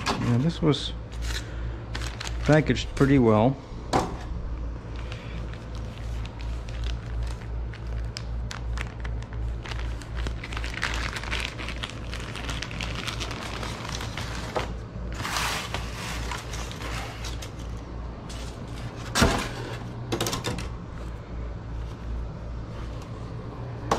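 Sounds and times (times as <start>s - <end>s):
low hum: 0.0s - 23.9s
plastic wrapping crinkling: 1.1s - 3.2s, 4.9s - 19.0s.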